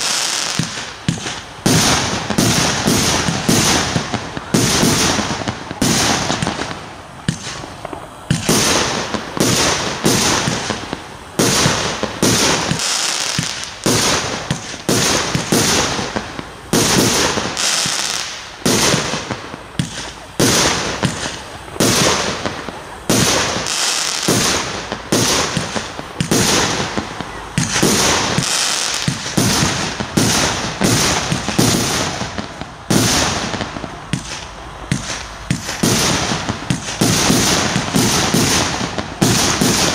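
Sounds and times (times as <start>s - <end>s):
fireworks bangs: 0.0s - 39.9s.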